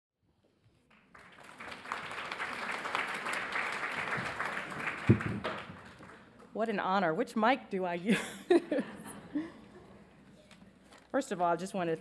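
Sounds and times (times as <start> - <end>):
audience applauding: 0.8 - 6.4.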